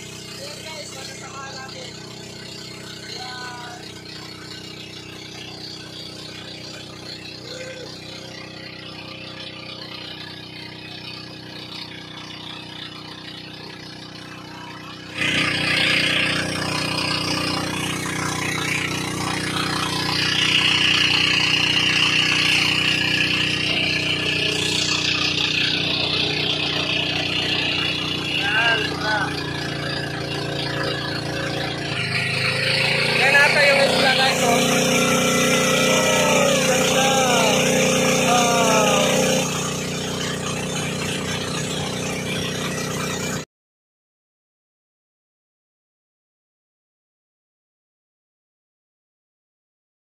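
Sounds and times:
wind: 0:00.0 - 0:35.4
boat engine running: 0:00.0 - 0:43.5
rushing water: 0:14.5 - 0:43.4.

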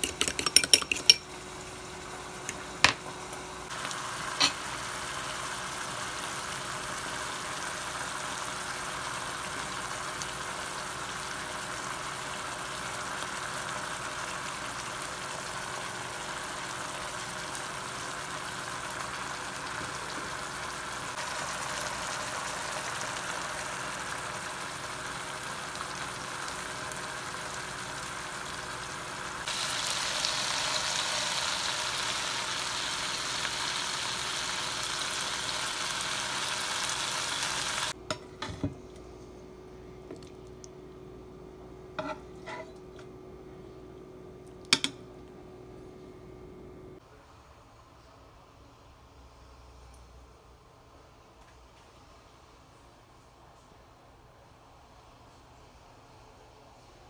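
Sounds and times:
sauce simmering and sizzling in a pan: 0:03.6 - 0:38.0.

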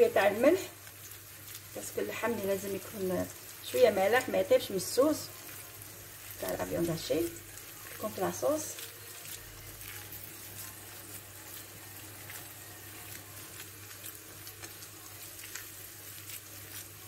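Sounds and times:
food sizzling on the hob: 0:00.0 - 0:17.0
small crackles: 0:00.0 - 0:17.0.

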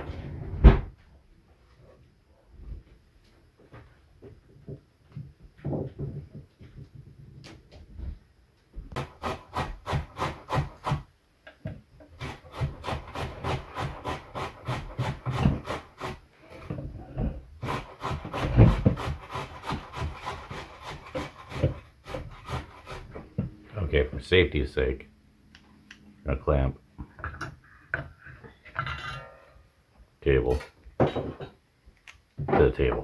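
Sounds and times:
scraping strokes on wood: 0:08.9 - 0:11.1, 0:12.0 - 0:23.8.

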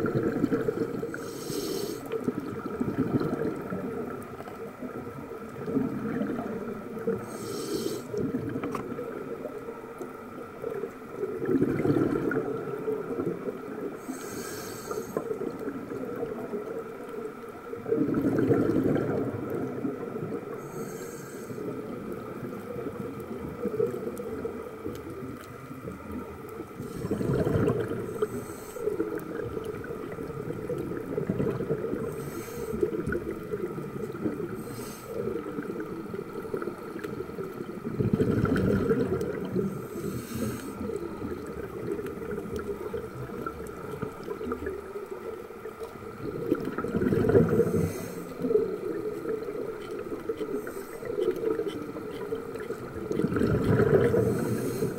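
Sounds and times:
bubbling exhalations: 0:00.0 - 0:03.9, 0:11.4 - 0:13.2, 0:17.9 - 0:19.9, 0:26.8 - 0:37.0, 0:37.8 - 0:44.7, 0:46.2 - 0:54.9
regulator hissing inhalations: 0:01.1 - 0:02.2, 0:07.2 - 0:08.2, 0:14.0 - 0:15.3, 0:20.6 - 0:21.8, 0:28.1 - 0:29.1, 0:32.0 - 0:32.9, 0:34.5 - 0:35.5, 0:39.7 - 0:40.9, 0:47.6 - 0:48.4, 0:54.2 - 0:54.9.

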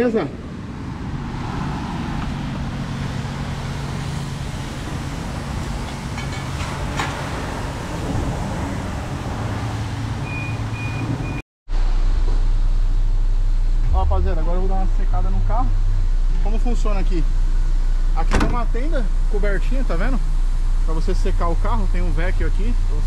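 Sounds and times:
low rumble: 0:11.8 - 0:20.9.

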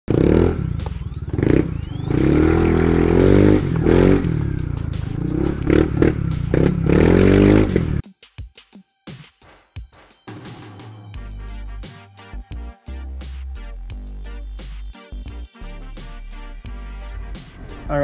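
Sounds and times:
scooter engine running: 0:00.1 - 0:08.0.

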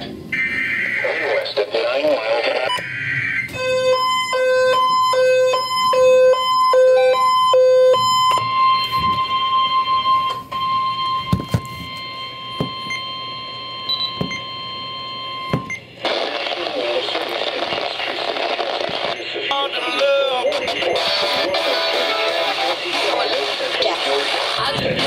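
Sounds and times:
alternating low and high beeps: 0:02.7 - 0:15.9, 0:20.2 - 0:22.3.

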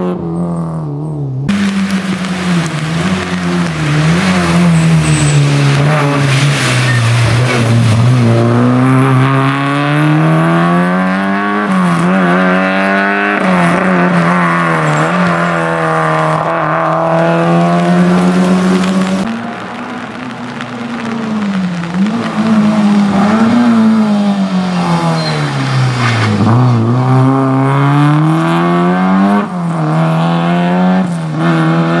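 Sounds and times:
rally car engine accelerating: 0:00.0 - 0:32.0
tyres hissing on wet tarmac: 0:01.5 - 0:09.0, 0:16.8 - 0:26.8.

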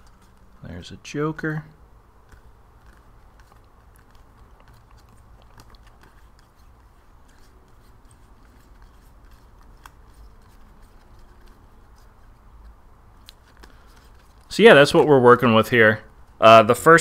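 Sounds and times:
plastic cards clicking and flicking: 0:02.2 - 0:14.5.

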